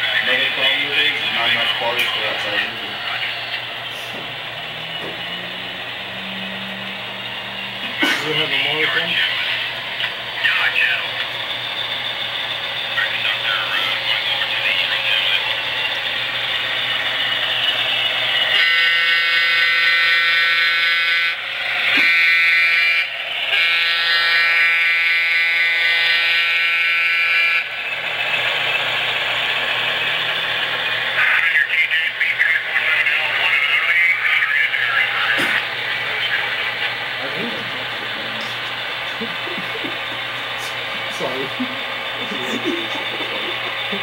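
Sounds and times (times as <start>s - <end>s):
recorded diesel engine sound: 0.0s - 44.0s
model train horn from speaker: 18.5s - 27.7s.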